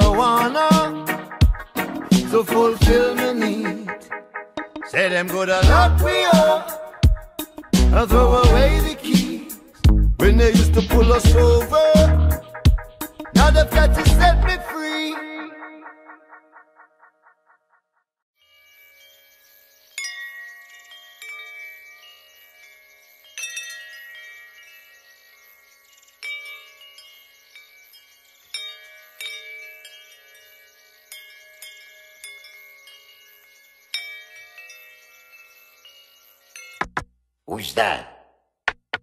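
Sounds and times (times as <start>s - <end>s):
chimes ringing: 18.4s - 37.0s.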